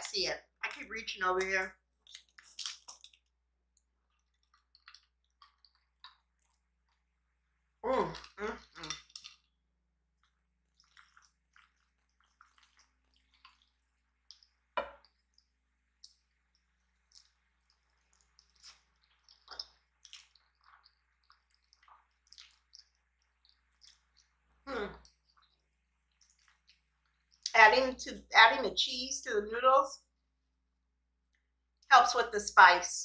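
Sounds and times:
small squishes and light clicks: 0:01.4 - 0:07.1, 0:10.2 - 0:27.6
wet chewing and slurping noodles: 0:01.9 - 0:07.4, 0:10.2 - 0:27.5.

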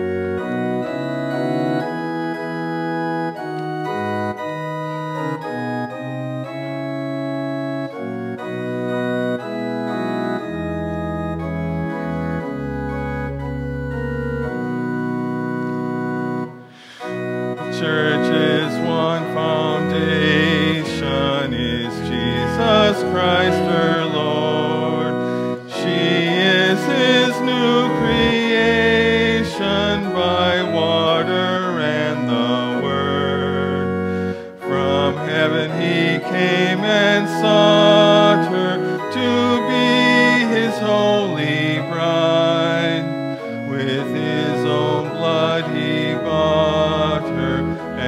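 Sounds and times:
church organ chords: 0:00.0 - 0:48.0
congregation singing a hymn: 0:17.0 - 0:48.0.

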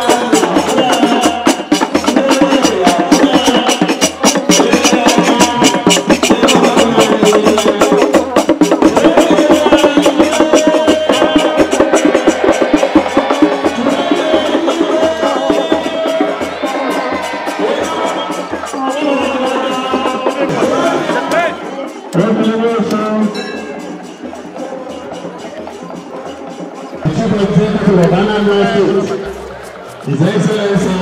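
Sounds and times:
hand drums: 0:00.0 - 0:31.0.

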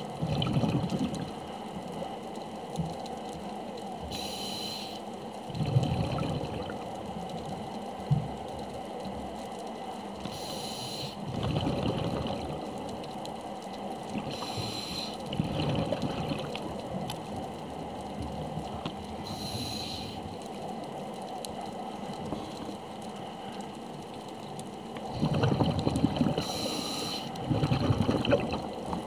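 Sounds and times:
exhaled bubbles rumbling: 0:00.0 - 0:02.0, 0:05.4 - 0:08.4, 0:11.2 - 0:13.4, 0:14.0 - 0:21.2, 0:24.0 - 0:29.0
underwater rumble: 0:00.0 - 0:29.0
regulator air hiss: 0:04.0 - 0:05.1, 0:10.2 - 0:11.2, 0:14.3 - 0:15.3, 0:19.2 - 0:20.4, 0:26.4 - 0:27.4.

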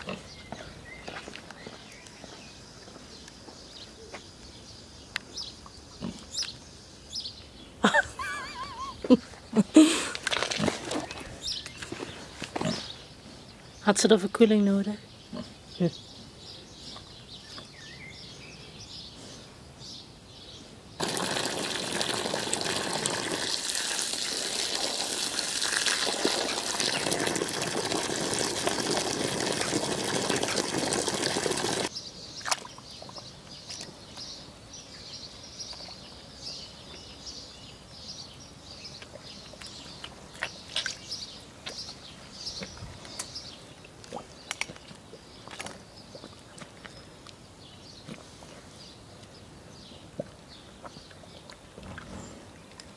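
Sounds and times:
birds chirping: 0:00.0 - 0:22.9
hose nozzle spraying water: 0:21.0 - 0:31.9
pig splashing in puddle: 0:21.0 - 0:33.9, 0:39.0 - 0:41.8, 0:44.1 - 0:47.0.

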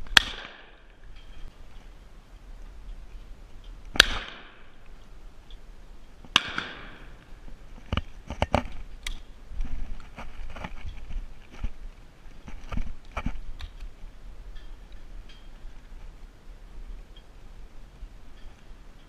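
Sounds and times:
shotgun shots: 0:00.2 - 0:00.8, 0:04.0 - 0:04.7, 0:06.3 - 0:07.1.

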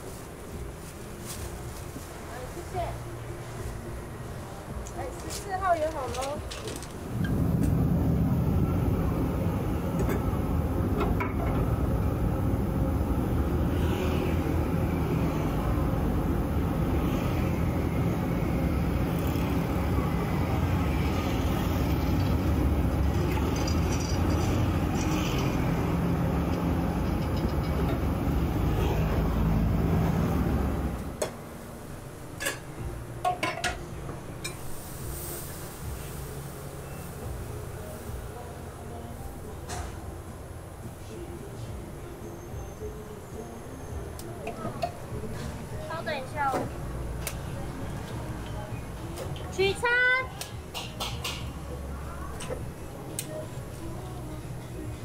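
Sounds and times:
low rumble: 0:07.0 - 0:26.3.

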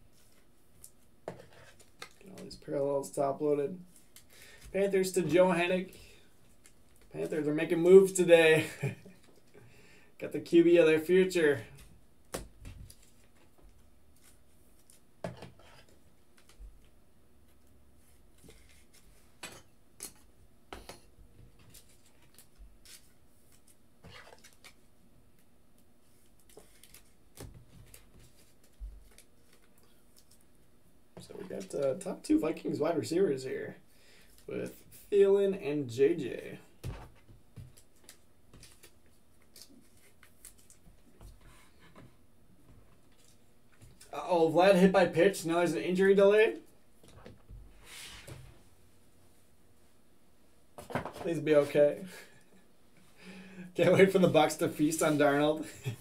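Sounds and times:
cards being handled: 0:21.6 - 0:30.5, 0:37.6 - 0:41.5
cards sliding on tabletop: 0:47.8 - 0:48.5.

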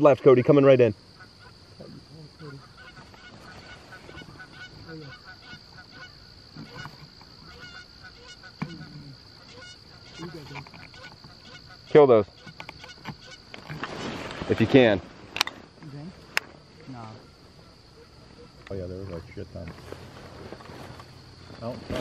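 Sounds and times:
geese honking and clucking: 0:01.1 - 0:13.9, 0:15.8 - 0:19.2.

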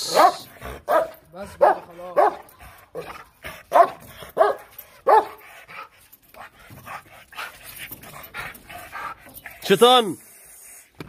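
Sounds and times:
dog barking aggressively: 0:00.0 - 0:05.4.

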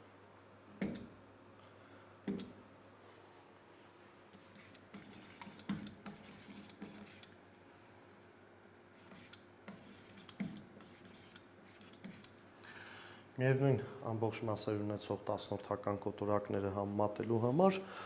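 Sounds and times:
pen tapping on whiteboard: 0:00.8 - 0:01.1, 0:05.0 - 0:07.2.

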